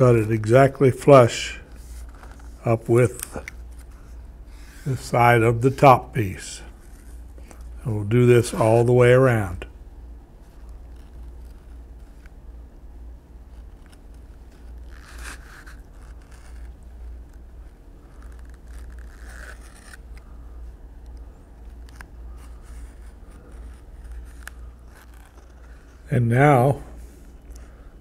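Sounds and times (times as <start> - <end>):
steady low hum: 0.0 - 28.0
knife cutting leather: 13.5 - 20.3, 21.7 - 26.0.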